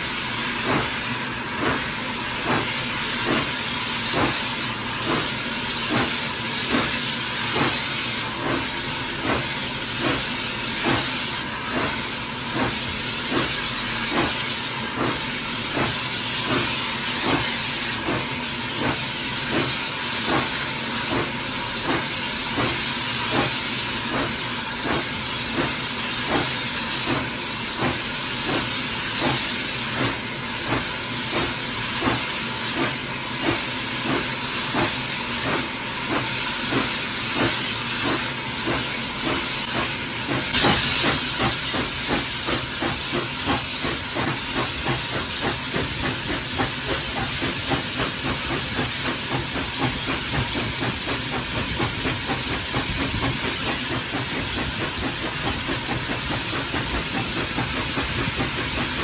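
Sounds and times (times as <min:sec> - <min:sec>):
steam hissing: 0:00.0 - 0:59.0
steam locomotive exhaust beats: 0:00.0 - 0:59.0.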